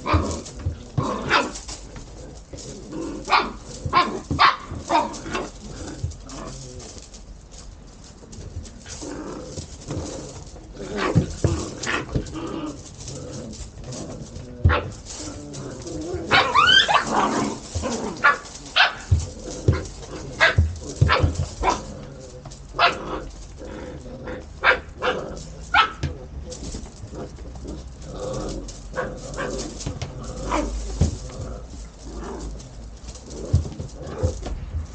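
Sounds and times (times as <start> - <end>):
puppies growling in play: 0.0 - 7.6, 8.2 - 34.9
puppies yipping: 16.2 - 19.8
puppy yelp: 16.3 - 17.2.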